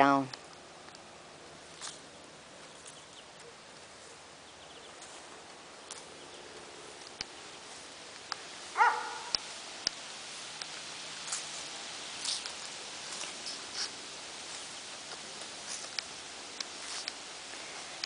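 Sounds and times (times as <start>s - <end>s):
bark-like animal call: 8.8s - 9.4s.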